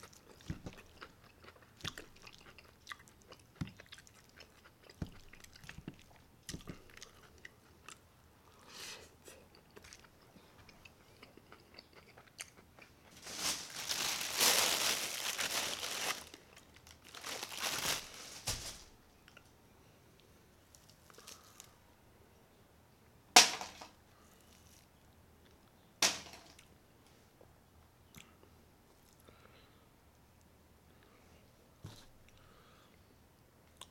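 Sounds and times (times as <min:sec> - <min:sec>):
soft chewing: 0:00.0 - 0:13.2, 0:19.2 - 0:21.8, 0:27.3 - 0:31.2, 0:31.8 - 0:33.9
loud rustling and crunching: 0:13.1 - 0:19.0.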